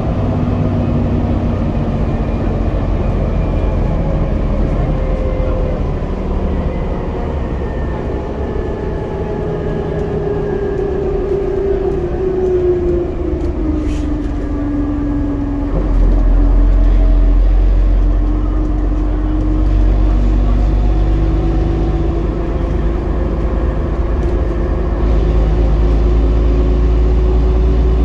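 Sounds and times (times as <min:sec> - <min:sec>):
bus engine whine: 0:00.0 - 0:28.0
deep engine drone: 0:00.0 - 0:28.0.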